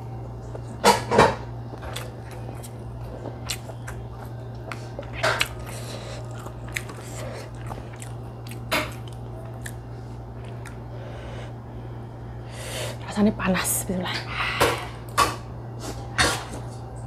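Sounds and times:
low hum: 0.0 - 17.0
person chewing food: 0.4 - 11.0.

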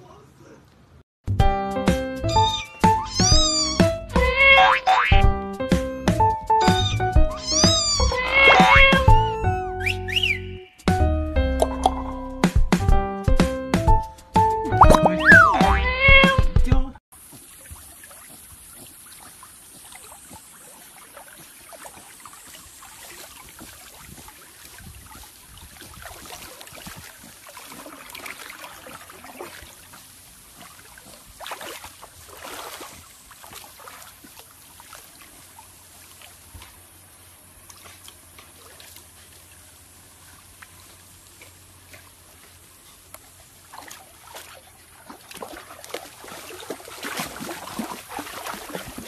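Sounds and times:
dog paddling in water: 17.2 - 49.0.

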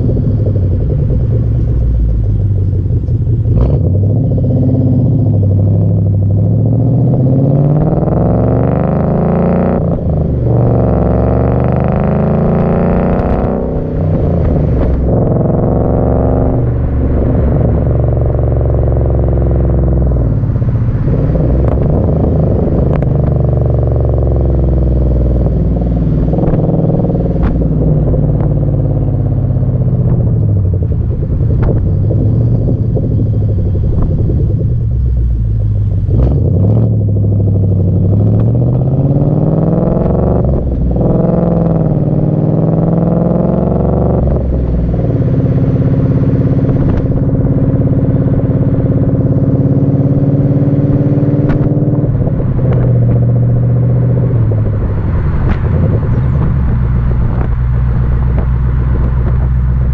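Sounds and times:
car exhaust revving: 0.0 - 59.9.

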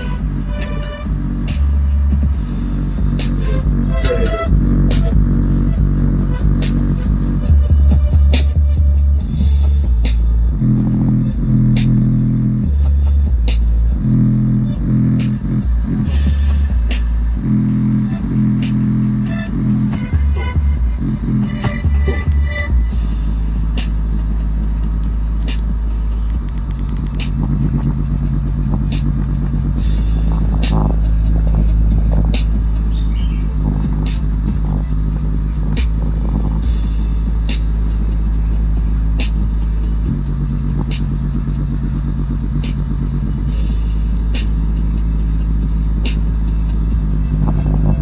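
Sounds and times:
sharp bass hits: 0.0 - 48.0
very deep bass from speakers: 0.0 - 48.0.

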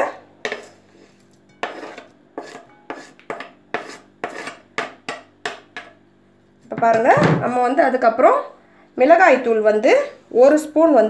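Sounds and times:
metal spoon scraping cutting board: 0.4 - 6.0.

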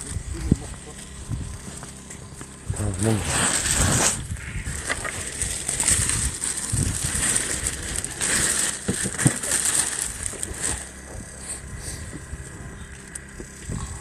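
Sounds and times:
plastic sheeting crinkling: 2.8 - 11.6.

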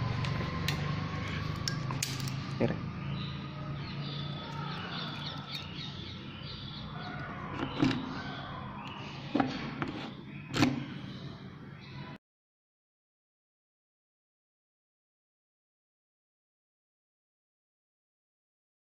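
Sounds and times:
birds chirping: 0.0 - 12.2.

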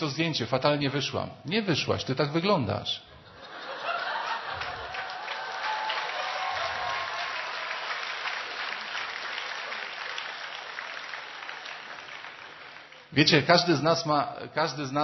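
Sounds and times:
large audience clapping: 3.6 - 13.2.

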